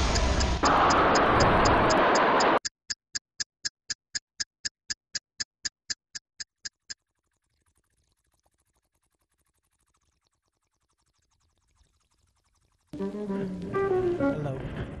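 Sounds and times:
sharp high ticks: 0:00.0 - 0:07.2.

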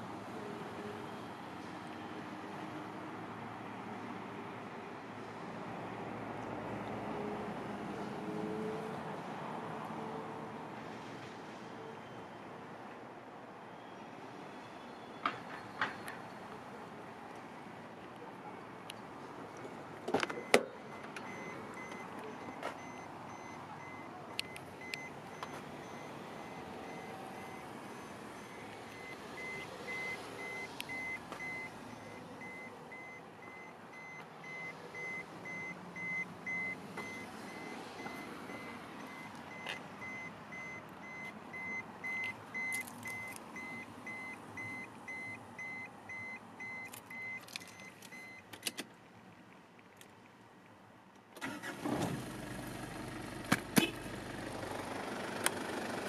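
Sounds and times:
high-pitched car warning chime: 0:20.3 - 0:48.4.

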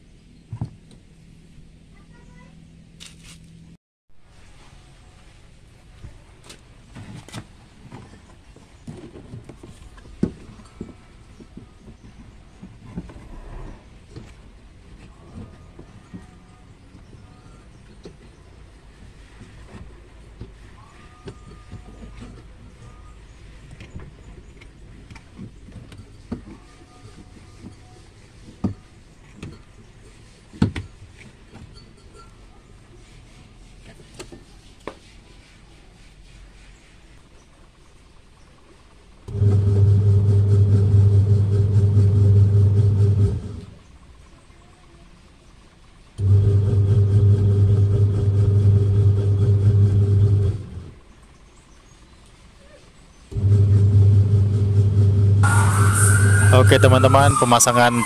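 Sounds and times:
low steady hum: 0:39.1 - 0:52.3.

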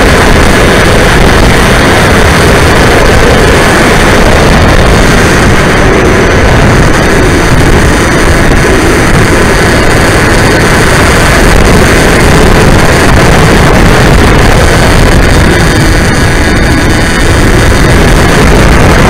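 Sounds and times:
electric motor and propeller: 0:00.0 - 0:19.0
rush of wind: 0:00.0 - 0:19.0.

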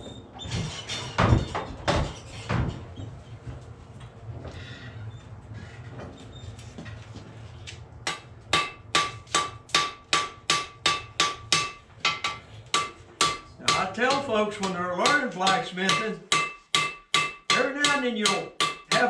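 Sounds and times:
hammer striking steel on anvil: 0:08.0 - 0:19.0.

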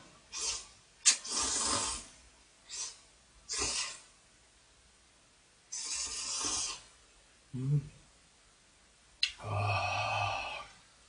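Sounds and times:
person slurping noodles: 0:00.3 - 0:02.1, 0:05.7 - 0:06.9.

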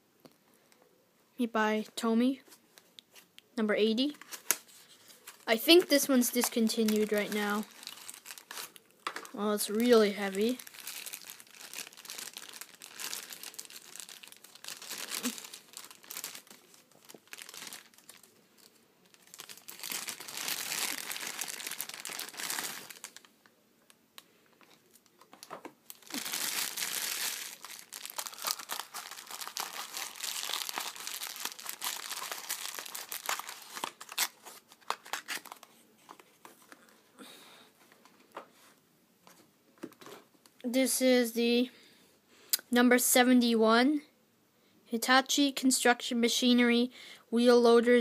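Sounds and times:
plastic bag crinkling: 0:04.2 - 0:23.4, 0:24.6 - 0:36.8.

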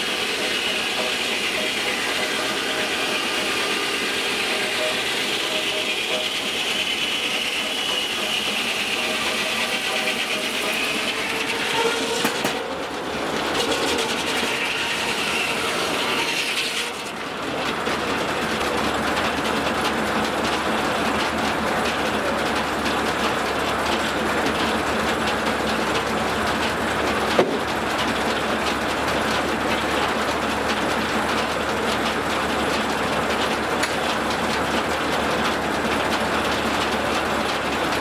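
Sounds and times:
circular saw whine: 0:00.0 - 0:17.4.

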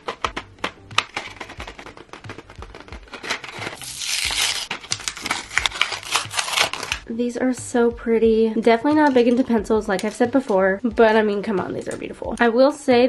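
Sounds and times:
plastic packaging crinkling: 0:00.0 - 0:07.0
card ripping: 0:00.0 - 0:07.1.

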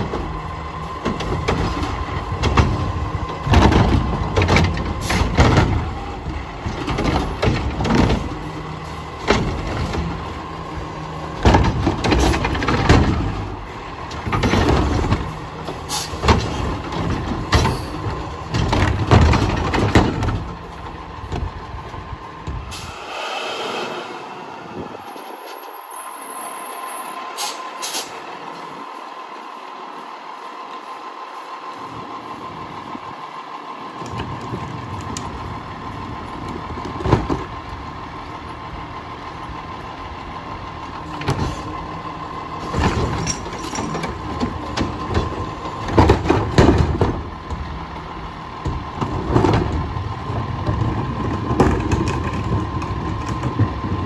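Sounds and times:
clanks and bangs of carts: 0:00.0 - 0:22.8, 0:33.9 - 0:54.0
heavy engine rumble: 0:00.0 - 0:54.0
steady high whine: 0:22.2 - 0:27.3
brief hiss: 0:22.7 - 0:25.7.

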